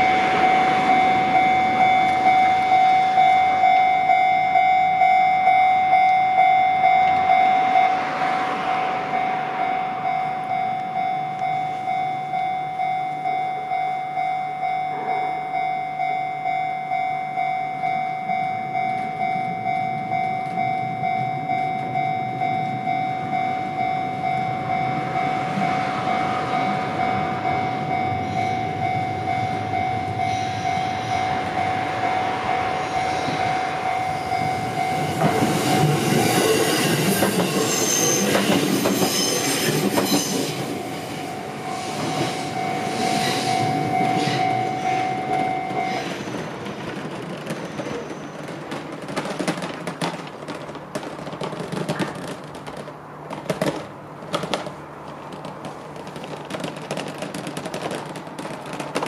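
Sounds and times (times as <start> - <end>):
level crossing alarm ringing: 0.0 - 48.5
train wheels clattering over rails: 23.0 - 59.0.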